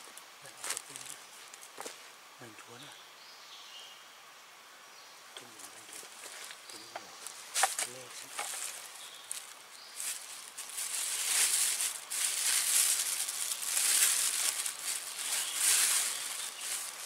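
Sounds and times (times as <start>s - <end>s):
plastic bag crinkling: 7.6s - 17.0s.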